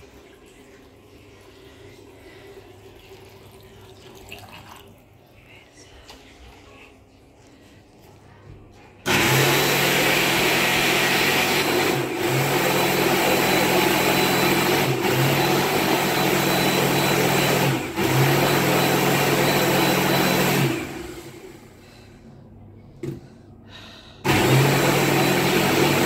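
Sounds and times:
hand dryer blowing: 9.1s - 21.8s, 24.2s - 26.0s.

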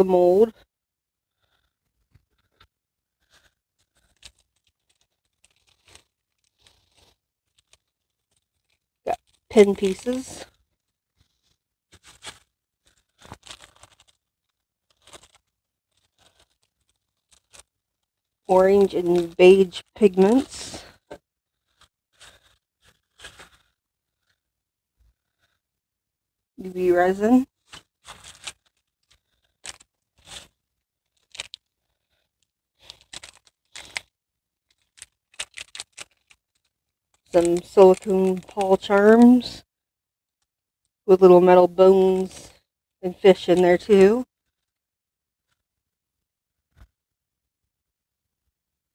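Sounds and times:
plastic bag crinkling: 3.2s - 18.2s, 27.5s - 34.1s, 34.7s - 39.2s.

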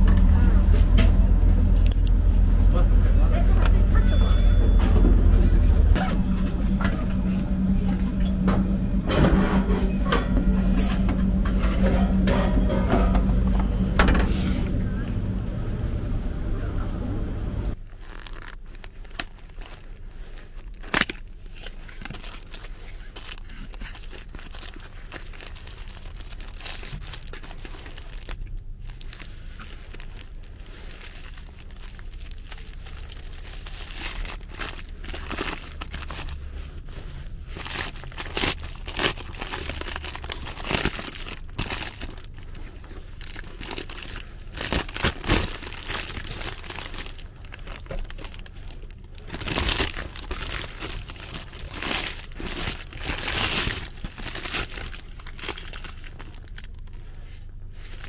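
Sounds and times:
paper wrapper crinkling: 17.7s - 58.0s.

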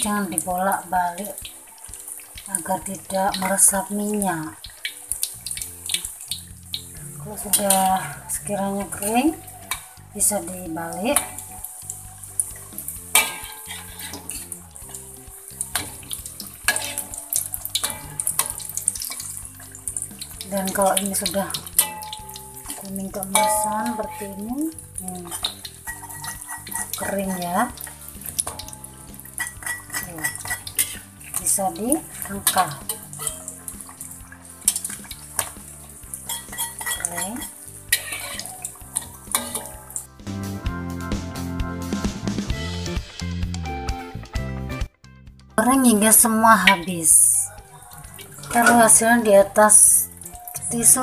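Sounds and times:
food sizzling in hot oil: 0.0s - 40.2s, 46.2s - 51.0s
metal utensil knocking on pan: 13.1s - 14.3s, 16.7s - 19.3s, 21.5s - 24.6s, 25.3s - 27.5s, 28.4s - 31.0s, 36.3s - 38.4s, 39.0s - 39.8s.

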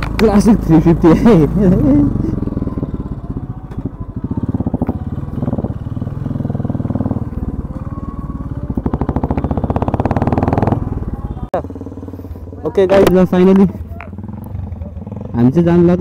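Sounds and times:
motorcycle engine thumping: 12.7s - 15.3s.

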